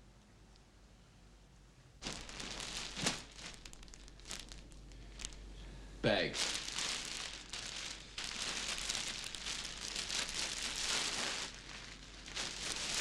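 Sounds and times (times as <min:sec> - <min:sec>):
bag rustling and crinkling: 0:02.0 - 0:05.5, 0:06.2 - 0:13.0.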